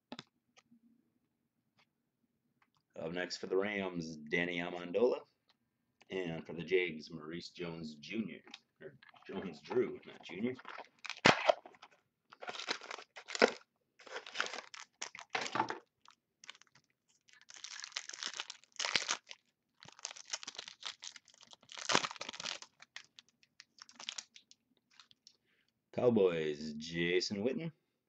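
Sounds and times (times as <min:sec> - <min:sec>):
card pack wrapper crinkling: 0:10.2 - 0:25.4.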